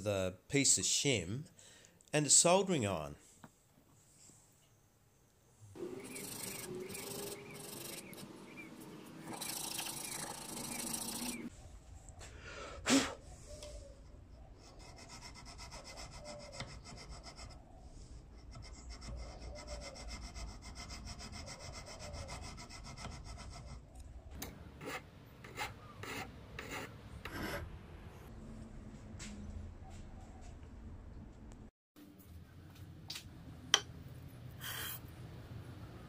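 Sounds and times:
file scraping metal: 5.8 - 11.5, 24.4 - 27.7.

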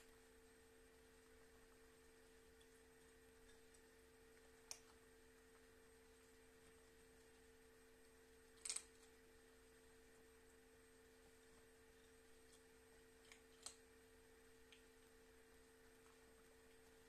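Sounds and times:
crackle: 11.2 - 14.0.

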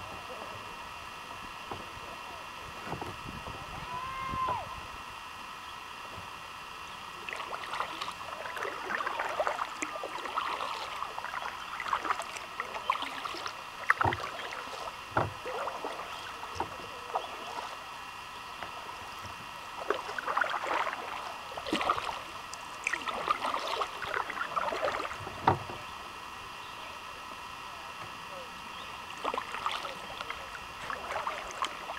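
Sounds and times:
paddle splashing in water: 7.2 - 17.9, 18.6 - 25.8, 29.1 - 31.9.

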